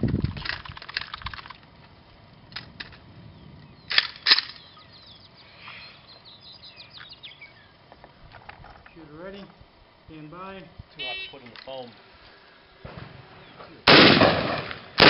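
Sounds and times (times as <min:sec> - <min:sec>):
distant rifle shots: 0:13.9 - 0:15.0.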